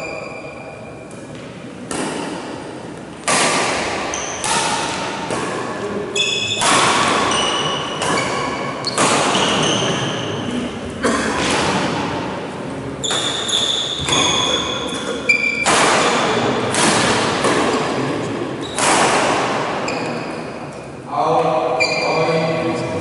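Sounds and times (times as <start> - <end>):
rackets hitting shuttlecock: 1.1 - 10.2, 11.4 - 12.3, 13.0 - 18.0, 18.6 - 20.5.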